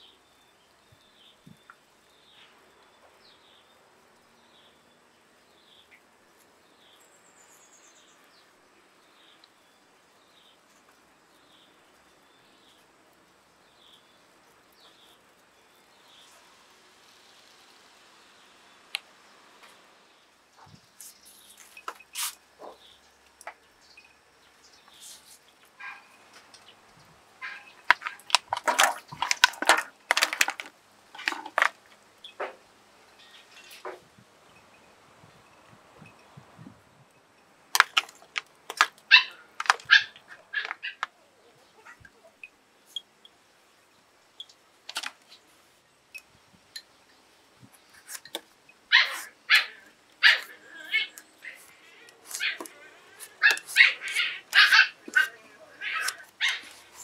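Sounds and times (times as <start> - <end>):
dog barking: 25.8 - 26.1, 48.9 - 51.1, 53.4 - 56.7
clams clacking against a metal pot: 27.9 - 31.8.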